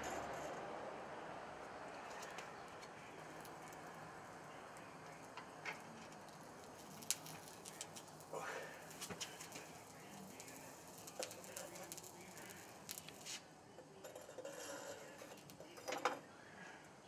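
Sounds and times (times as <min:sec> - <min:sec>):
sand mold crackling and ticking: 0:01.9 - 0:15.9.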